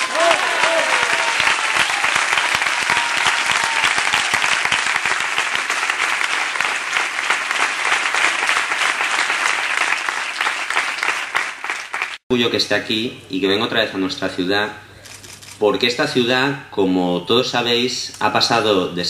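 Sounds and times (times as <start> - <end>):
large audience applauding: 0.0 - 12.2.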